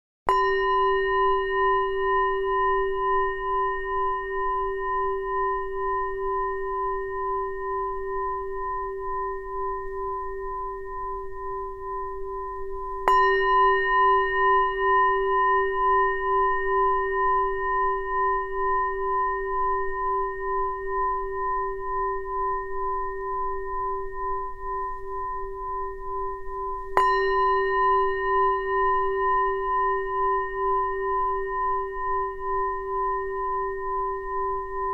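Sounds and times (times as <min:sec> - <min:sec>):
singing bowl ringing: 0:00.3 - 0:34.9.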